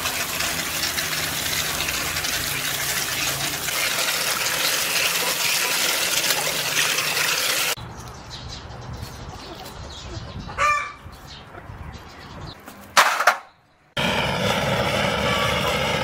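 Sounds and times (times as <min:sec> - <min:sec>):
tap water gushing into steel bowl: 0:00.0 - 0:07.8.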